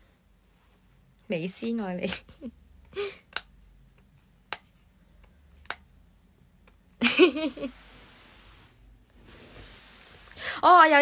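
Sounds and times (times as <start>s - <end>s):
woman laughing: 7.0s - 7.8s.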